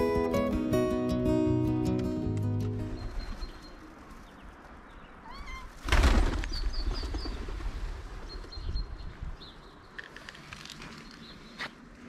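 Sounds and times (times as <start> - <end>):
cat meowing: 5.2 - 5.8.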